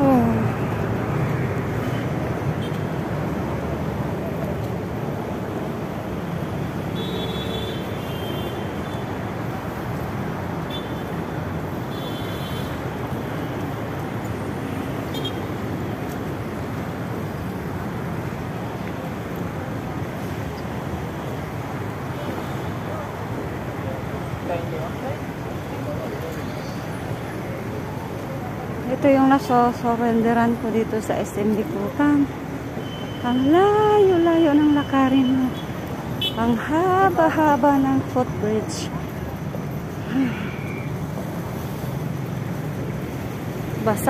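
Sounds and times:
road traffic noise: 0.0 - 44.0.

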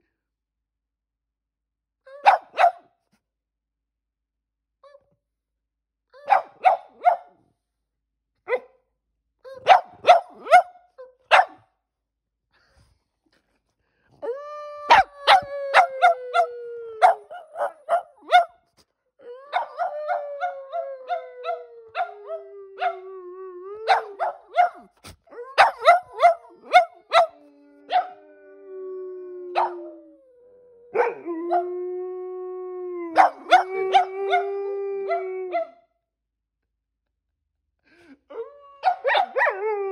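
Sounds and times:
dogs howling: 14.9 - 18.0, 19.2 - 24.4, 32.9 - 35.7.

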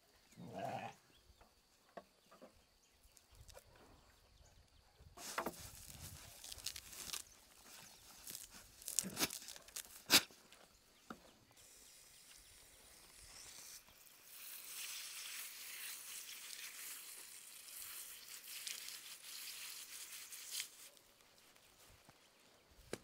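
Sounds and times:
hose nozzle spraying water: 13.1 - 20.9.

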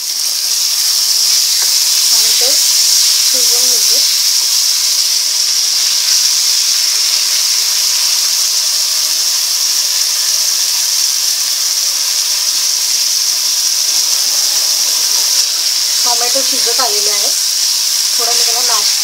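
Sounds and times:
onions and tomatoes sizzling in oil: 0.0 - 19.0.

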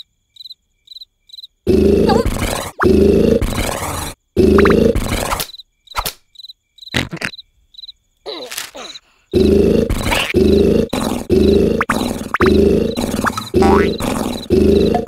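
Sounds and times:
cricket chirps: 0.0 - 15.0
cartoon snoring: 1.7 - 5.4, 8.8 - 15.0.

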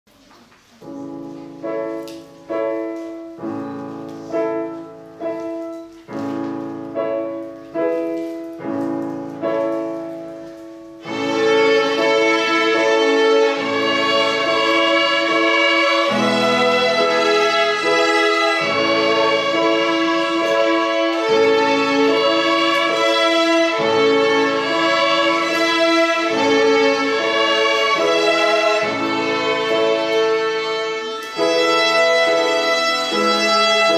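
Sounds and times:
piano chords: 0.7 - 33.9
violins playing a tune: 9.7 - 33.9.

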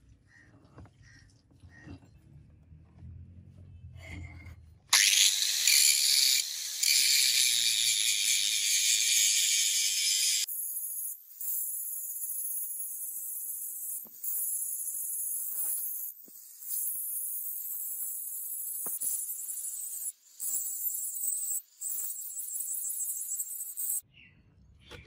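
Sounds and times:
angle grinder grinding steel: 4.9 - 24.0.

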